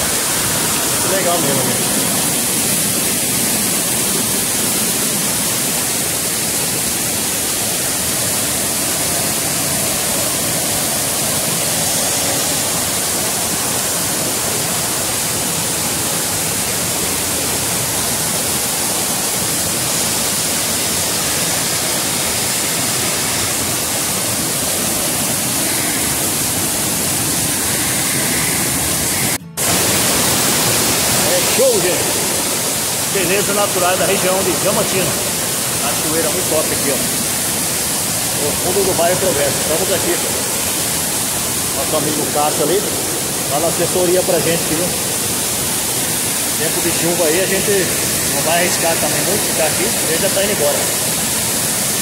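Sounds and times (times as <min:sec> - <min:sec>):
waterfall rushing over boulders: 0:00.0 - 0:52.0.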